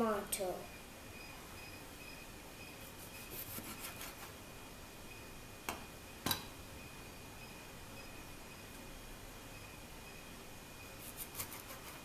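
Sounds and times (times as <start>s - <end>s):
knife sawing through tomato: 2.9s - 4.3s, 11.0s - 12.0s.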